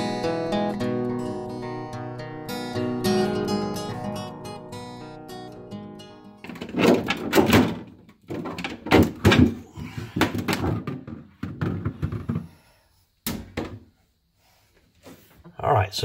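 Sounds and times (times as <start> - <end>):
plastic panel clatter: 6.4 - 9.6
plastic panel knocking and scraping: 6.4 - 12.5.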